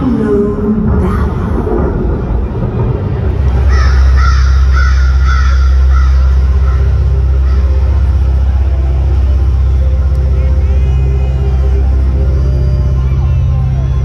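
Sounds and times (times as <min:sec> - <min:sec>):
deep steady rumble: 0:00.0 - 0:14.0
dramatic sound effects over speakers: 0:00.0 - 0:14.0
high-pitched cawing calls: 0:03.7 - 0:08.2.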